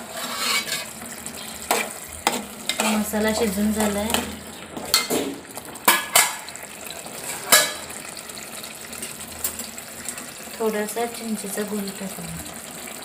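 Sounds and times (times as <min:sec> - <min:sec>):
spoon stirring thick paste: 0:00.0 - 0:01.0
low frying sizzle: 0:00.0 - 0:13.0
spoon clacking against metal pot: 0:05.8 - 0:06.6, 0:07.5 - 0:07.9.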